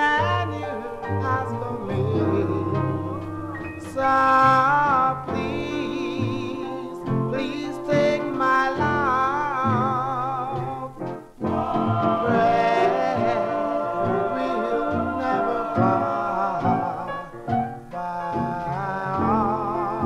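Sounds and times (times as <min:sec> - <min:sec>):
band accompaniment: 0:00.0 - 0:20.0
vocal group singing with vibrato: 0:00.0 - 0:20.0.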